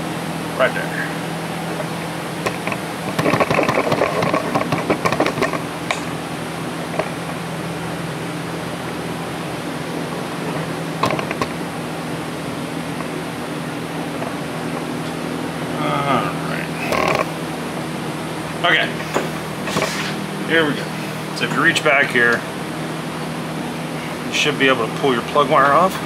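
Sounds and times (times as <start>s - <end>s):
low machine hum: 0.0s - 26.0s
rattling and clicking: 1.8s - 6.1s, 11.0s - 11.6s, 16.8s - 17.3s.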